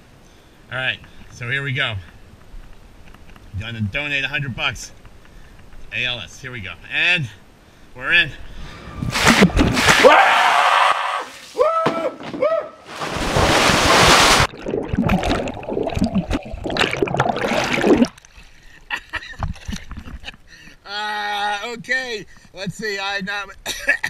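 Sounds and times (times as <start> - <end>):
water splashing and rushing: 8.9 - 10.4, 12.8 - 18.4.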